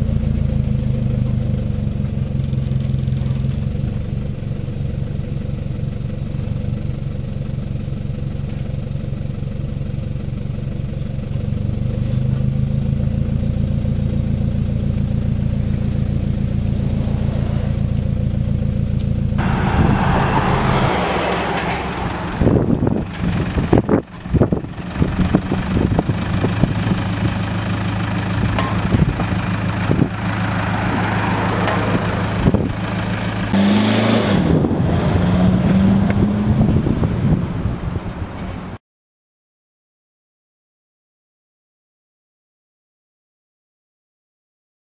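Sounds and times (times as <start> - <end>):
diesel engine idling: 0.0 - 33.6
wind buffeting microphone: 19.4 - 26.8, 34.4 - 38.4.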